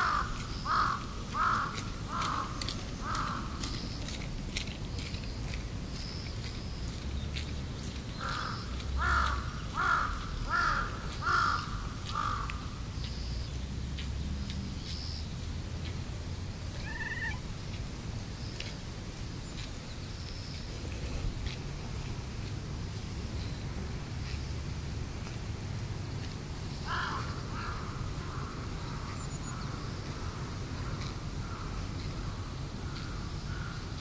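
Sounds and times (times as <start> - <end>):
crow cawing: 0.0 - 3.7, 8.2 - 12.8, 16.8 - 17.4, 26.8 - 31.8, 32.9 - 33.8
short high bird call: 16.8 - 17.4.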